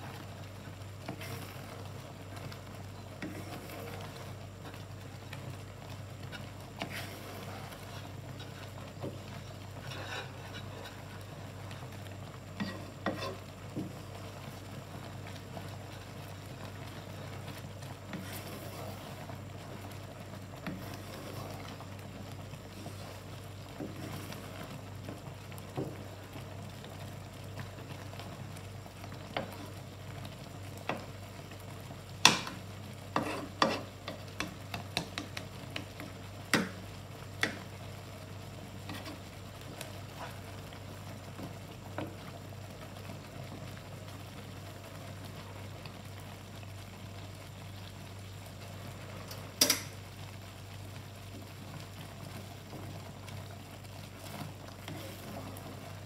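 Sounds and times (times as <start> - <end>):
spatula stirring thick sauce: 0.0 - 45.7, 51.6 - 56.0
sauce simmering: 0.0 - 56.0
steady low hum: 0.0 - 56.0
spatula knocking and scraping pan: 3.0 - 4.8, 12.6 - 14.2, 17.5 - 19.1, 32.2 - 37.7, 38.8 - 39.3.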